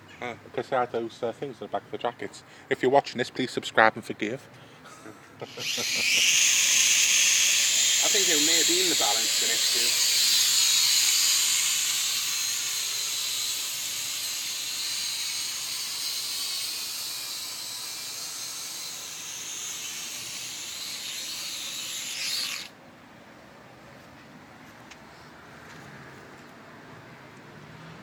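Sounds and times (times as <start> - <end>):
drone propellers whining: 5.4 - 22.7.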